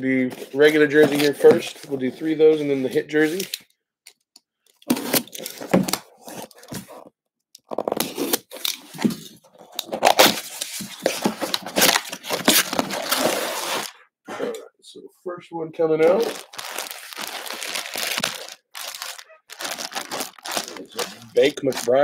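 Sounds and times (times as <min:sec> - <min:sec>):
box cutter slitting packing tape: 0:04.8 - 0:06.5, 0:11.4 - 0:13.9.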